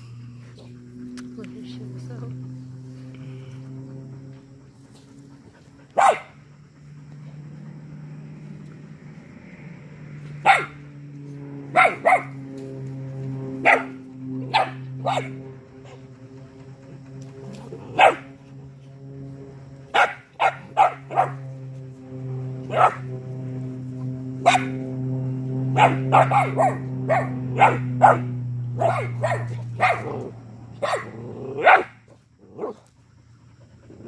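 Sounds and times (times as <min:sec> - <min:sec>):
steady low hum: 0:00.0 - 0:34.0
puppies yapping: 0:03.8 - 0:07.9, 0:10.4 - 0:10.9, 0:11.7 - 0:12.5, 0:13.5 - 0:18.7, 0:19.9 - 0:21.6, 0:22.6 - 0:23.1, 0:24.4 - 0:25.0, 0:25.7 - 0:32.0.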